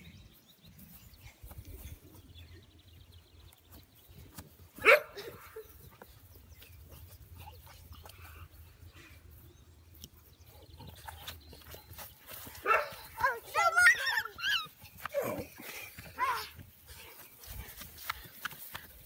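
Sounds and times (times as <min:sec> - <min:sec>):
puppy barking: 0:04.8 - 0:05.3, 0:12.6 - 0:12.9
faint scuffling: 0:10.8 - 0:19.0.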